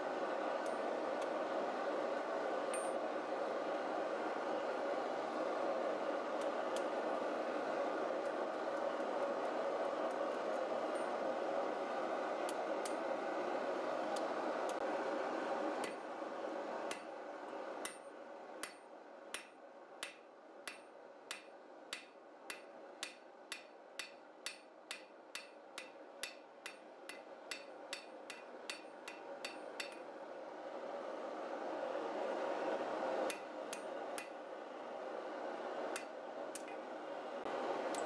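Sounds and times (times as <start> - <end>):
hammer striking hot metal on anvil: 17.8 - 30.0.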